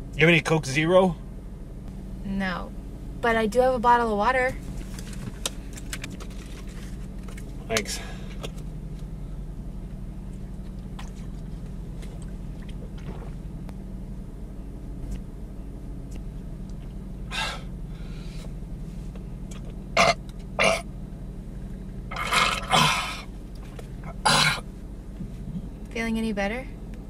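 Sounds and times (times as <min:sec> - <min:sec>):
low hum of car: 0:00.0 - 0:27.0
man drinking from a bottle: 0:11.0 - 0:13.5
man belching: 0:20.0 - 0:20.8, 0:22.1 - 0:23.2, 0:24.0 - 0:24.6.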